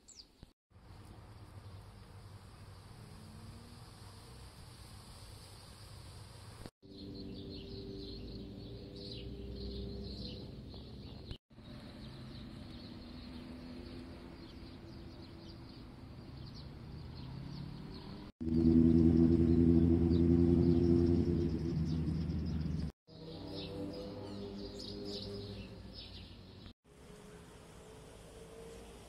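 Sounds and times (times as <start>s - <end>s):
small birds chirping: 0.0s - 0.5s, 6.8s - 18.3s, 20.1s - 26.7s
low hum: 18.4s - 25.9s.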